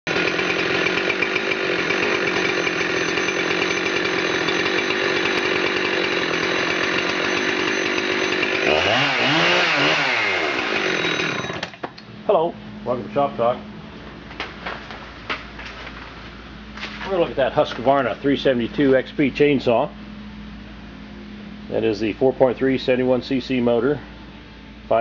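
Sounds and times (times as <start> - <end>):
chainsaw engine running: 0.1 - 11.9, 16.8 - 20.0.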